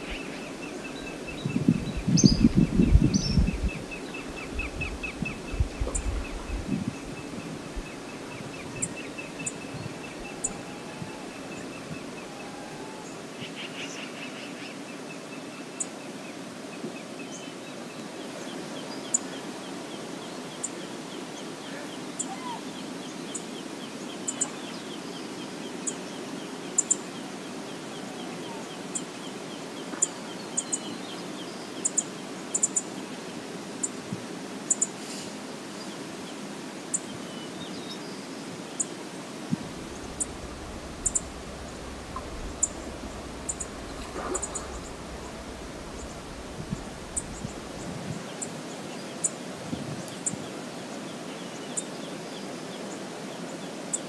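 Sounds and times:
river water rushing: 3.4s - 13.4s, 38.2s - 53.9s
bird chip notes: 39.7s - 47.9s.

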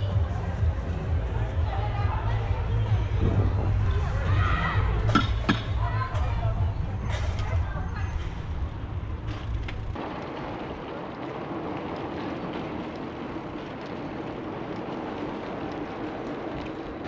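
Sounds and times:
bicycle tyre and wind rush: 0.0s - 17.0s
wind rumble on microphone: 0.2s - 17.0s.

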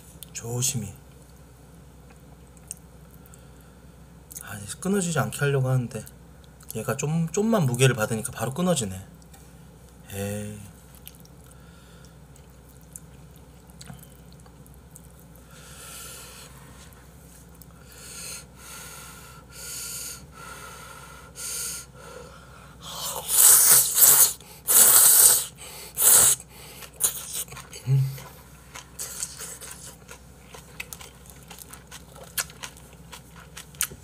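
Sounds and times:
person breathing softly: 11.5s - 12.2s, 15.4s - 17.0s, 17.8s - 23.3s
person slurping noodles: 22.8s - 28.3s.

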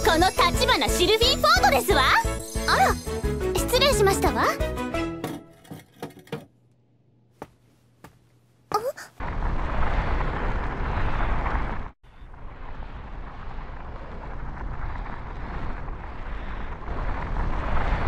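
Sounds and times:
deep ominous rumble: 9.2s - 18.0s.

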